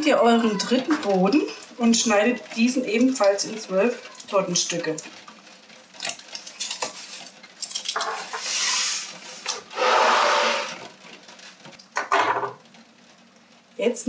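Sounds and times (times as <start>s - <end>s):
plastic plate scraping on wood: 8.2s - 10.9s.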